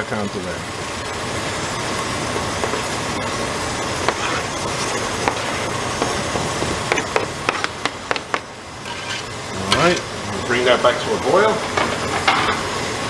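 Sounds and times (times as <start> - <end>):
knife scraping cutting board: 4.0 - 6.2, 8.8 - 9.4
knife tapping cutting board: 6.0 - 8.5.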